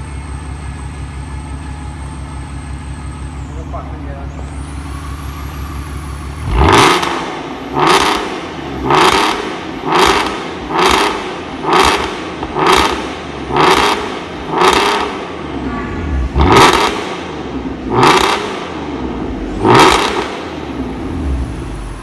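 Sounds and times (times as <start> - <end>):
car engine revving: 4.4 - 22.0.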